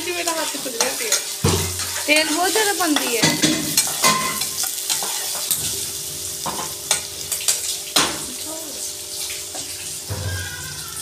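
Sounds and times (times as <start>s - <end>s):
onions sizzling in hot oil: 0.0s - 11.0s
metal spatula scraping a pan: 0.1s - 5.6s.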